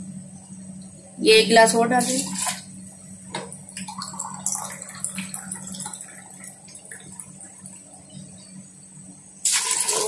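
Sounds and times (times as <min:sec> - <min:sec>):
steady low hum: 0:00.0 - 0:09.5
water pouring and splashing into pot: 0:09.4 - 0:10.0.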